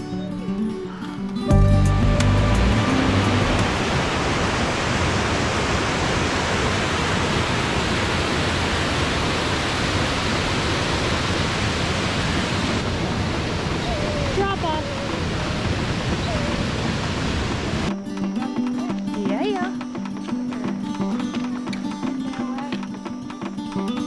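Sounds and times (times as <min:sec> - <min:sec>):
waterfall rushing: 0:01.9 - 0:17.9.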